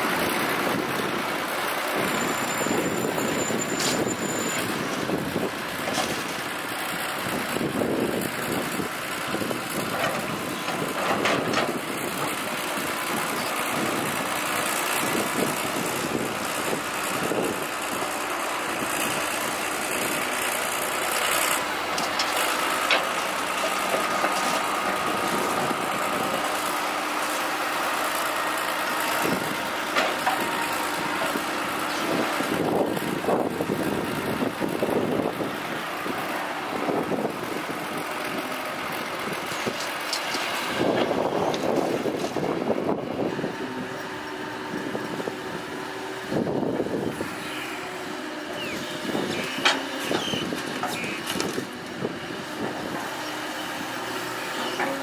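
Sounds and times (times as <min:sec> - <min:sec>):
diesel machinery engines: 0:00.0 - 0:55.0.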